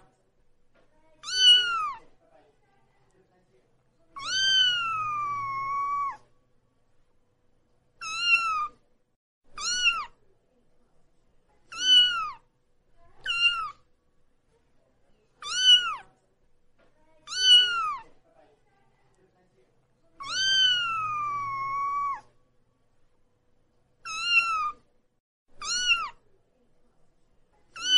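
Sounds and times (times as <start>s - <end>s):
kitten meowing: 1.2s - 2.0s, 4.2s - 6.2s, 8.0s - 8.8s, 9.6s - 10.2s, 11.7s - 12.4s, 13.2s - 13.8s, 15.4s - 16.0s, 17.3s - 18.0s, 20.2s - 22.3s, 24.0s - 24.8s, 25.6s - 26.2s.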